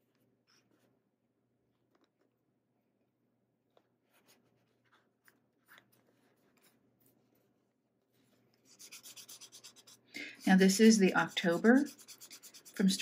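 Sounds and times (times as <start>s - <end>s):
rubbing strokes on paper: 8.6s - 13.0s.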